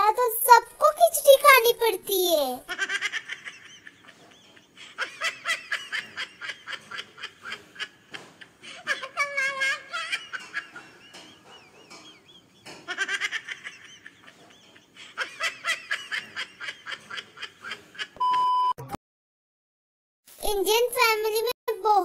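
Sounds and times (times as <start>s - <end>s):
child giggling: 2.7s - 12.0s, 12.6s - 18.2s
high test-tone beep: 18.2s - 18.9s.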